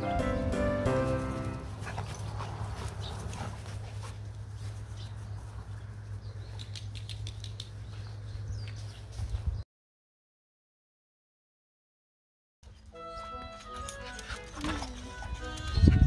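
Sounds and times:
rustles on dry grass: 1.1s - 6.6s.

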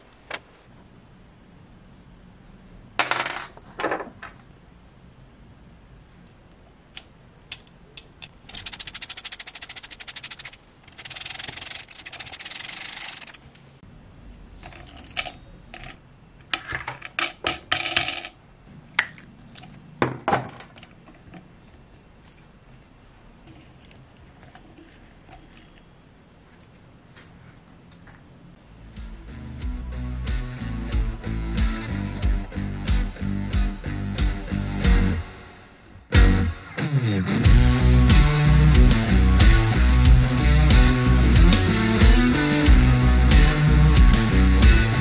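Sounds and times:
metal parts rasping rattles: 7.4s - 13.7s.

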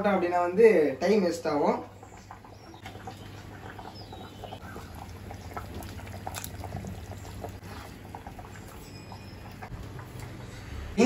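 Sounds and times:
curry simmering in a pot: 1.4s - 10.9s
fish pieces splashing in: 5.6s - 7.6s.

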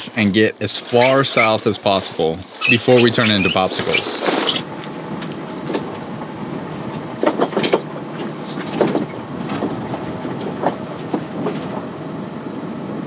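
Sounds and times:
sail hardware knocks and clatters: 6.9s - 11.7s.

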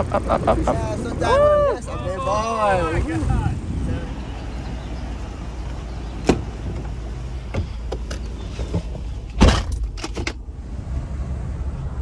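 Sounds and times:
steady low rumble: 0.0s - 7.9s
car door shutting with thump: 6.2s - 10.4s.

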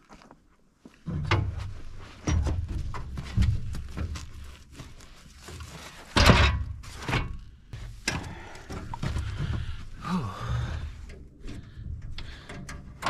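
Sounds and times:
knocks and clunks of tractor controls: 1.1s - 4.4s, 6.0s - 10.0s, 10.6s - 13.0s.

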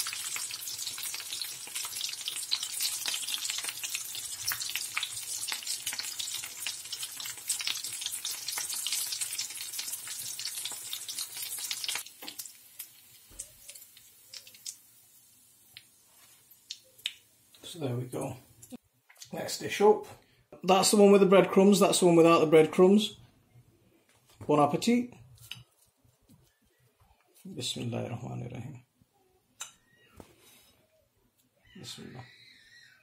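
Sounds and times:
food sizzling in hot oil: 0.0s - 17.6s.

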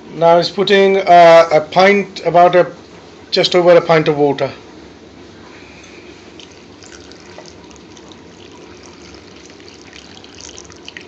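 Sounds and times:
water pouring into a pan: 6.4s - 11.0s.

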